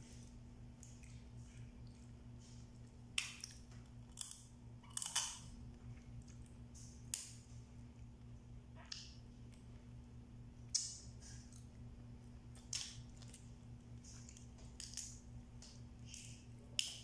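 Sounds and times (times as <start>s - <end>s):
low electrical hum: 0.0s - 17.0s
crab shell cracking: 3.2s - 5.5s, 14.2s - 15.2s.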